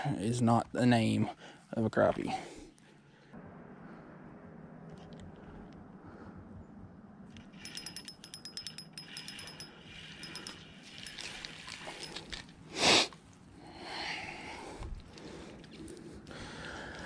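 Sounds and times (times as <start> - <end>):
reel clatter: 7.4 - 12.5
fishing reel clicking: 7.5 - 11.6.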